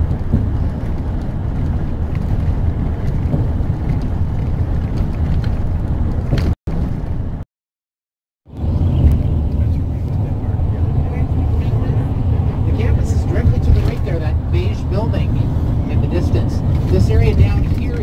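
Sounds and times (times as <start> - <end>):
coach road and engine rumble: 0.0 - 7.4, 8.5 - 18.0.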